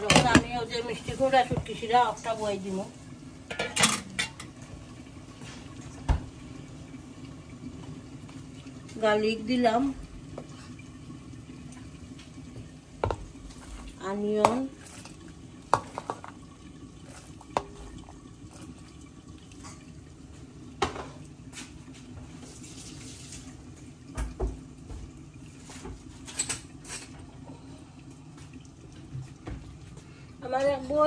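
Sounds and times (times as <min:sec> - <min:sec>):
utensils clinking on pots and dishes: 0:03.4 - 0:04.6, 0:26.2 - 0:27.2.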